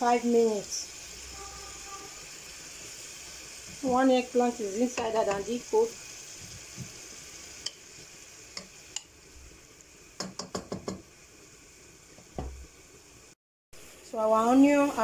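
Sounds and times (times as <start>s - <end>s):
vegetables sizzling faintly in oil: 0.0s - 15.0s
wooden spoon knocking against pot: 10.2s - 11.1s.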